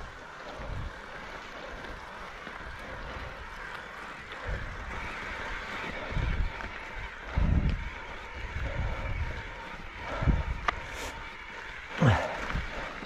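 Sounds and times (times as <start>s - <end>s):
low wind buffeting: 0.0s - 13.0s
wind rushing over microphone: 7.2s - 10.9s.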